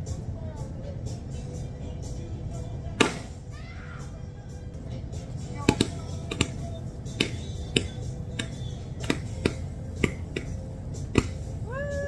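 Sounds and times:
steady low rumble: 0.0s - 12.0s
sharp snaps or pops: 7.2s - 11.5s.

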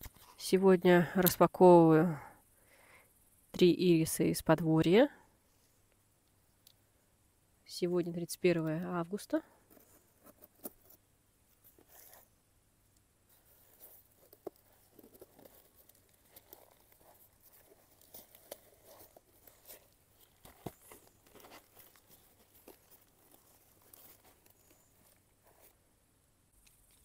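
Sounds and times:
packaging tearing and crinkling: 14.2s - 25.1s.

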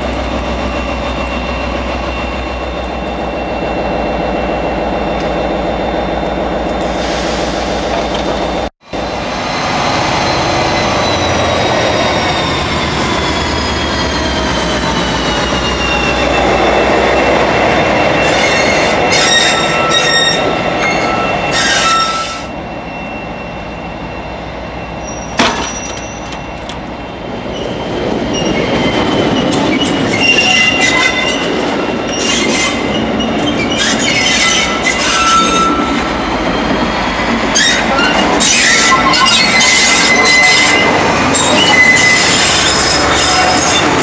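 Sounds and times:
high-pitched wheel squeal: 9.5s - 26.6s, 27.5s - 44.0s.

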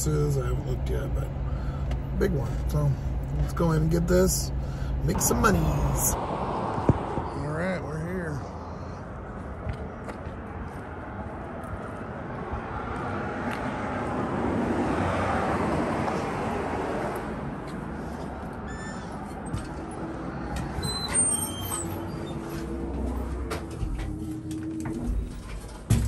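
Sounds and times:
vehicle passing: 4.6s - 21.0s, 21.6s - 25.9s.

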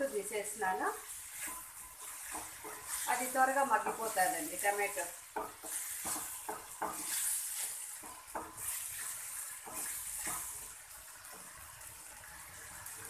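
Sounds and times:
vegetables sizzling in a pan: 0.0s - 13.0s
wooden spatula knocking and scraping: 0.9s - 11.6s.

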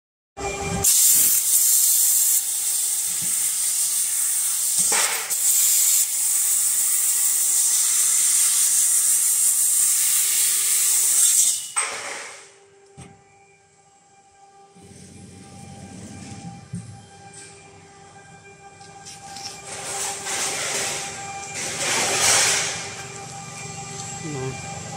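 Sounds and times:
compressed air hissing: 0.8s - 6.7s.

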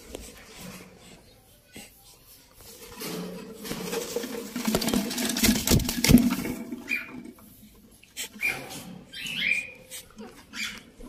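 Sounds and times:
parrots flapping and scuffling: 2.6s - 7.3s.

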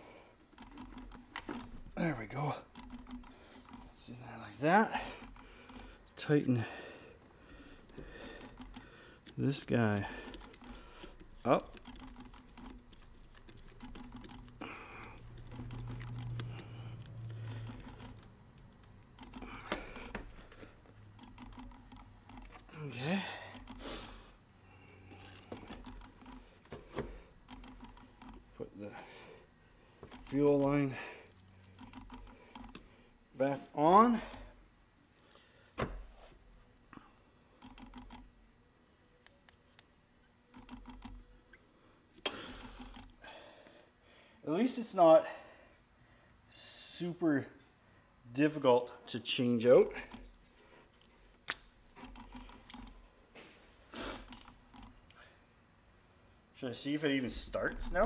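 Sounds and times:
screwdriver clicking and scraping: 0.5s - 2.0s, 2.6s - 6.3s, 7.7s - 22.8s, 23.5s - 24.0s, 25.1s - 28.6s, 30.0s - 30.8s, 31.6s - 32.9s, 42.2s - 43.2s, 50.9s - 53.0s, 53.9s - 55.0s
sharp ticks: 10.1s - 19.6s, 21.2s - 22.6s.

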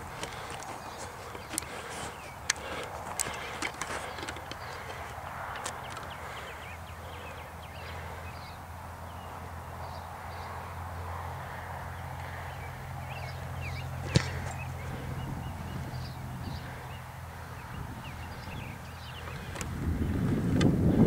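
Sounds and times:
low outdoor background: 0.0s - 21.0s
foot kicking football: 14.0s - 15.0s.

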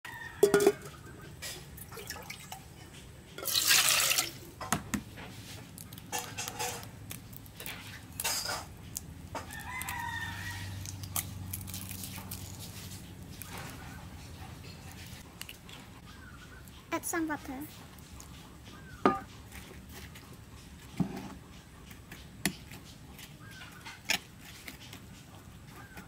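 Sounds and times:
chickens and rooster calling: 0.0s - 1.5s, 9.2s - 11.5s.

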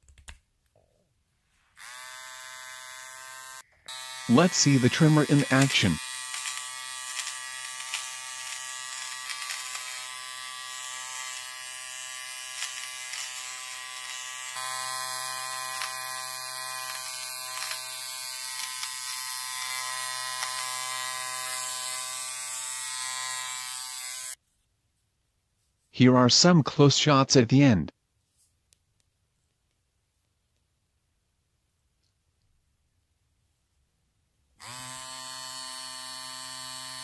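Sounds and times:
nose trimmer buzzing: 1.8s - 24.4s, 34.6s - 37.0s.

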